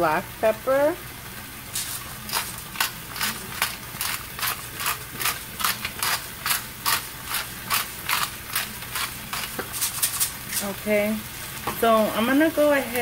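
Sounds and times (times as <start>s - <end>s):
pepper grinder grinding: 1.7s - 10.8s.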